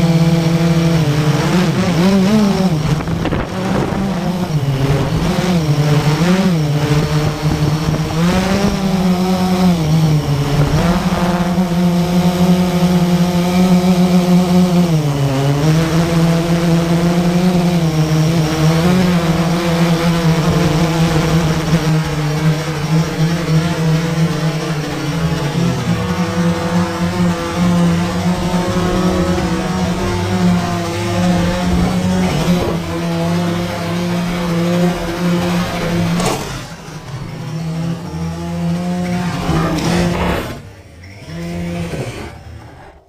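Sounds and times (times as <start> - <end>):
quadcopter motors humming: 0.0 - 43.0.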